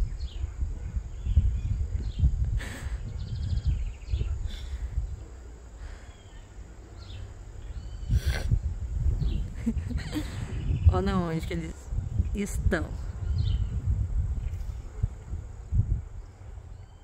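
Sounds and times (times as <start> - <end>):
birds chirping: 0.0 - 17.0
wind rumbling on microphone: 0.0 - 17.0.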